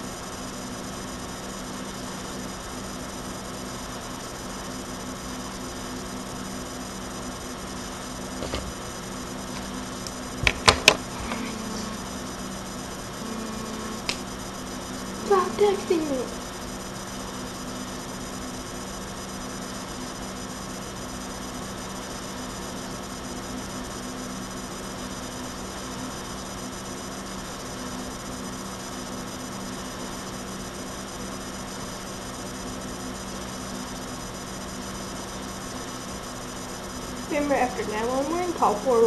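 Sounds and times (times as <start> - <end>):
low constant hum: 6.8 - 17.8.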